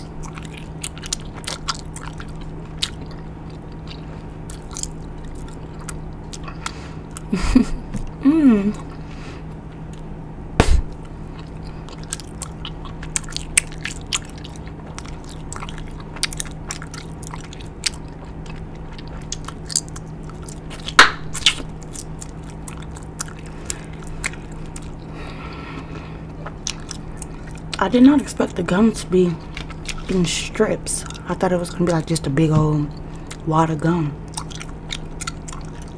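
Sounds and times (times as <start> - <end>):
gum chewing smacks and clicks: 0.0 - 7.3, 9.8 - 25.1, 25.7 - 27.8, 29.4 - 30.1, 34.2 - 35.9
steady low hum: 0.0 - 35.9.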